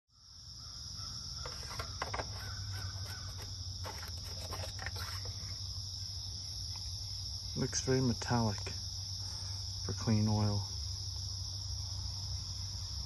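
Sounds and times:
insects chirping chorus: 0:00.1 - 0:13.0.

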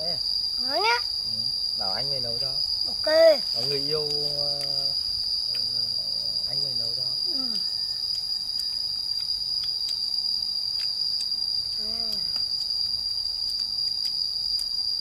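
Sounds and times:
insects chirring: 0:00.0 - 0:15.0
faint ticks: 0:05.4 - 0:05.8, 0:08.0 - 0:10.1, 0:10.7 - 0:14.9.

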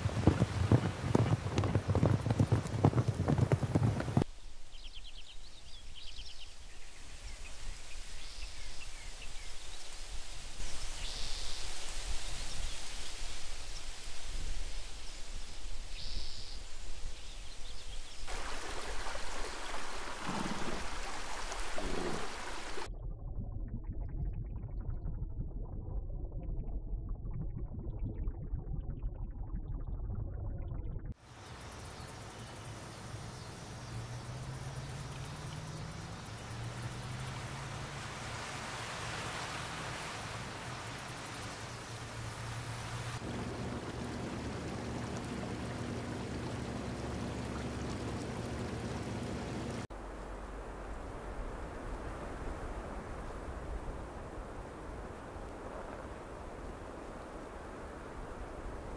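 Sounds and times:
galloping hoofbeats on grass: 0:00.0 - 0:04.3, 0:18.3 - 0:22.9
rushing water: 0:00.0 - 0:04.3, 0:06.4 - 0:22.9, 0:31.2 - 0:58.9
open air hiss: 0:00.0 - 0:22.9, 0:31.2 - 0:58.1
underwater rumble and bubbling: 0:18.3 - 0:31.2, 0:43.2 - 0:58.9.

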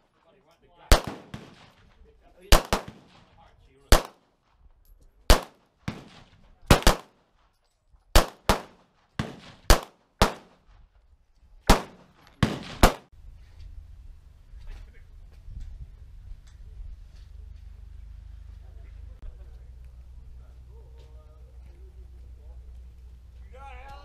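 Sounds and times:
pistol shots: 0:00.9 - 0:01.8, 0:02.5 - 0:03.3, 0:03.9 - 0:04.2, 0:05.3 - 0:07.2, 0:08.1 - 0:10.7, 0:11.7 - 0:13.1.

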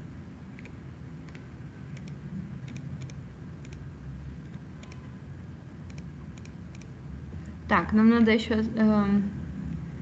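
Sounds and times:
low steady rumble: 0:00.0 - 0:10.0
computer mouse clicking: 0:00.5 - 0:03.8, 0:04.4 - 0:05.0, 0:05.8 - 0:06.9.

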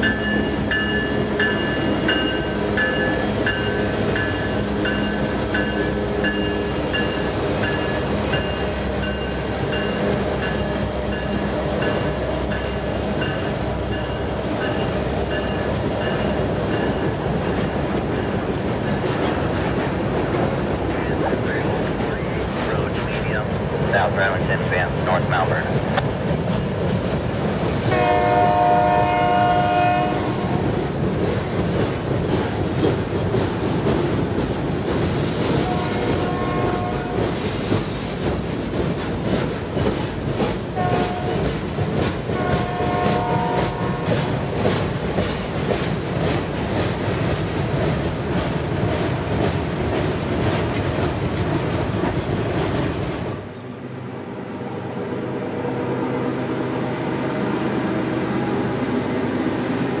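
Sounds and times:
steady train rumble: 0:00.0 - 1:00.0
train horn: 0:27.9 - 0:30.7, 0:35.6 - 0:37.3, 0:40.8 - 0:41.4, 0:42.3 - 0:44.2
wheels clattering over rail joints: 0:30.7 - 0:53.6.

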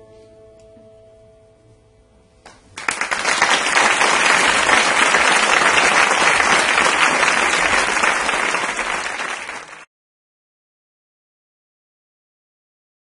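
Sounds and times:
audience applause: 0:02.8 - 0:09.9.

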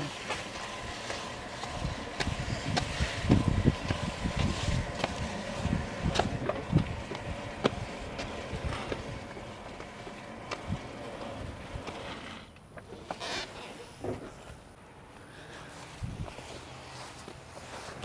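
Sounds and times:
wind buffeting microphone: 0:00.5 - 0:11.9, 0:15.9 - 0:16.5.

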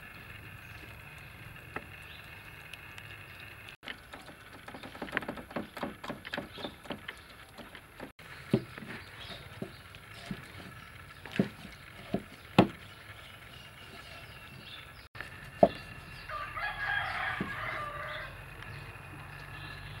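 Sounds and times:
cleaver chopping on wood: 0:11.3 - 0:12.8
rooster crowing: 0:16.2 - 0:18.6.

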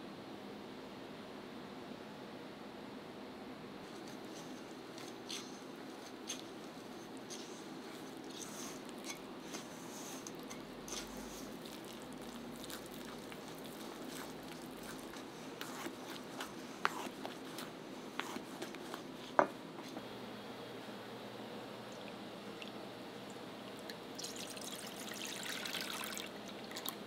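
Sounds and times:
spatula squishing and scraping bowl: 0:04.0 - 0:19.4.

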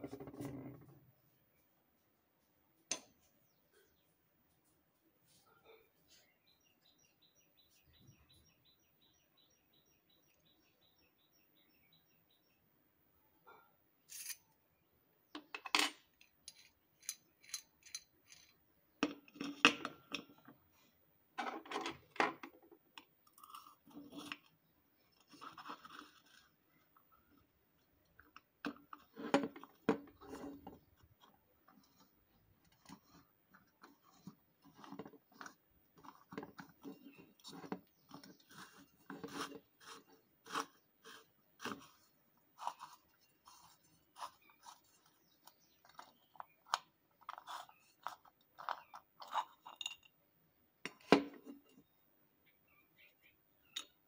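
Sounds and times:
metal clinks and scrapes: 0:14.1 - 0:14.5, 0:15.7 - 0:18.6, 0:48.6 - 0:50.1.

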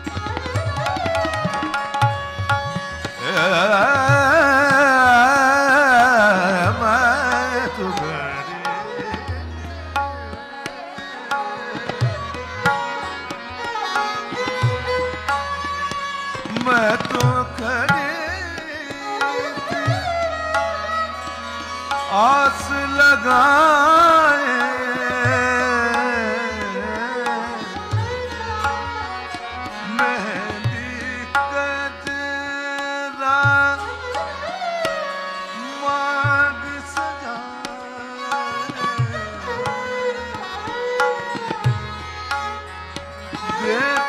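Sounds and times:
tabla rhythm: 0:00.0 - 0:44.0
tanpura drone: 0:00.0 - 0:44.0
man singing classical vocal runs: 0:03.1 - 0:09.4, 0:16.5 - 0:20.4, 0:22.0 - 0:28.0, 0:29.8 - 0:34.0, 0:35.6 - 0:39.9, 0:43.4 - 0:44.0.

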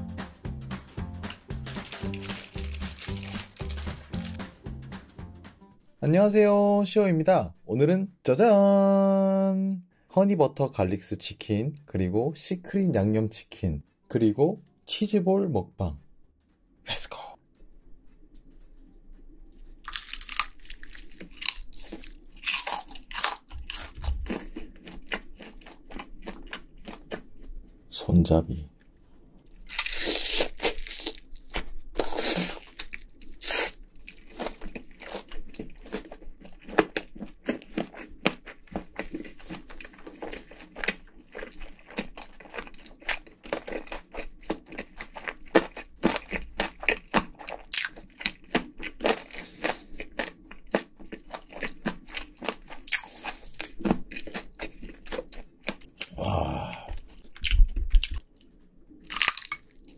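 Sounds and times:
crunching and chewing fried chicken: 0:01.2 - 0:04.6, 0:19.3 - 0:27.8, 0:28.8 - 0:59.9.

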